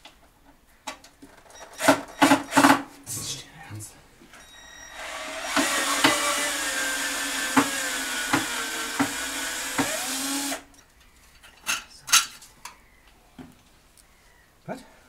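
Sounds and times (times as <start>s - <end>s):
cordless drill running: 4.9s - 10.7s.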